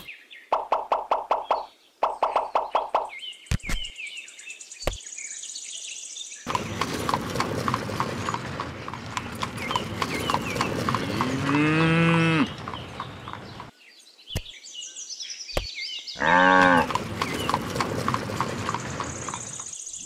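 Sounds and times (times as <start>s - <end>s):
horse hooves clip-clopping: 6.5s - 13.7s, 16.6s - 19.8s
cow mooing: 11.0s - 12.7s, 16.2s - 17.0s.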